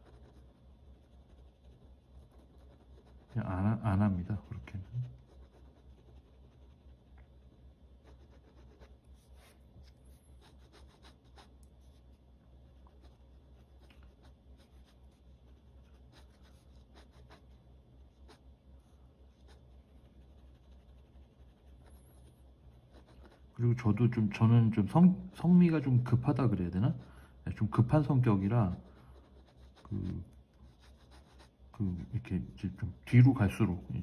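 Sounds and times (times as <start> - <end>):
pen scratching on paper: 0.0 - 9.6, 10.4 - 12.1, 12.7 - 18.4, 19.3 - 24.4, 27.7 - 32.1
low steady hum: 0.0 - 34.0.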